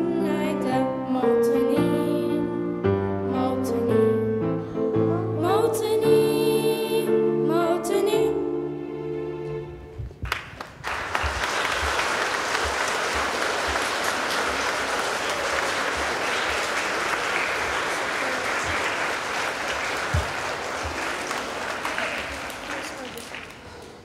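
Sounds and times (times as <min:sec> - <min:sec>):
audience applauding: 0:10.2 - 0:24.0.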